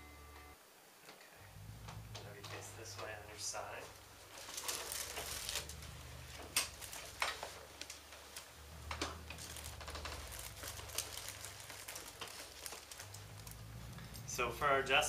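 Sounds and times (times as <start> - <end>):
low steady hum: 0.0 - 15.0
clothing rustling on padded table: 3.0 - 14.3.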